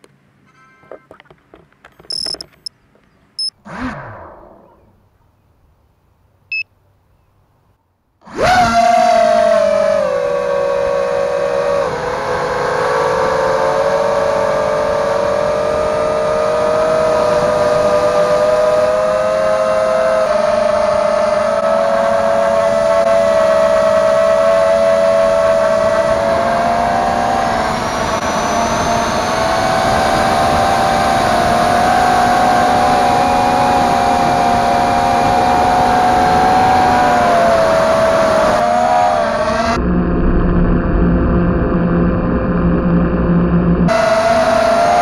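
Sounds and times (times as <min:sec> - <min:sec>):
quadcopter motors whining: 0:02.1 - 0:02.7, 0:03.4 - 0:04.9, 0:08.3 - 0:39.9
low rumble: 0:39.8 - 0:43.9.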